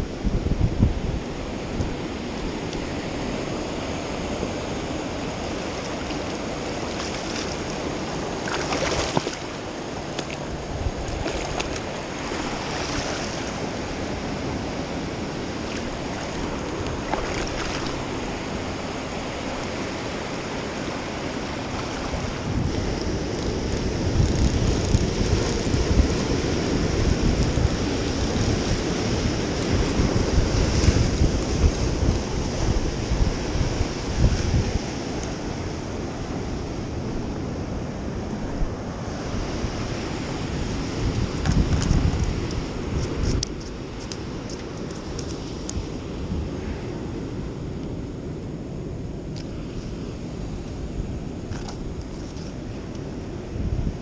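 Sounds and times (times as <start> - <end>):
ocean surf washing onto beach: 0.0 - 54.0
waves breaking against rocks: 3.3 - 35.6.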